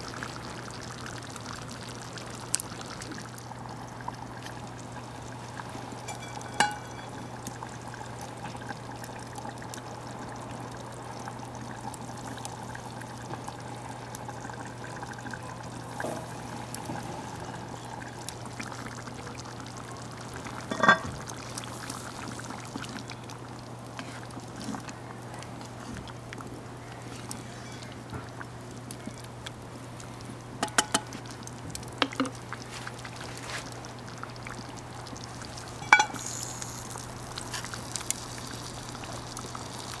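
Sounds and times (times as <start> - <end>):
curry bubbling in a pot: 0.0 - 40.0
wood fire crackling: 0.0 - 40.0.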